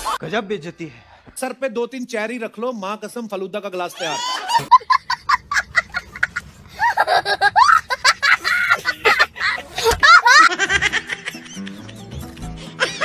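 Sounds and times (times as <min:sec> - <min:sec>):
small child laughing: 0:04.0 - 0:11.7.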